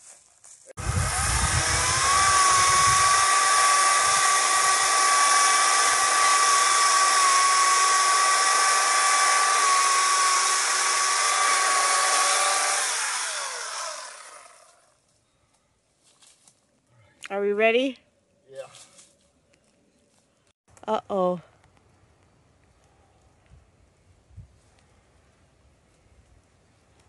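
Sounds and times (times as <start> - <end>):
electric chainsaw cutting wood: 0.8 - 15.0.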